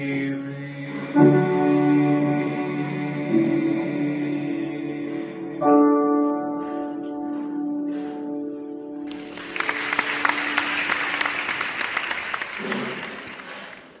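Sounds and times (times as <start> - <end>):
applause: 9.1 - 14.0.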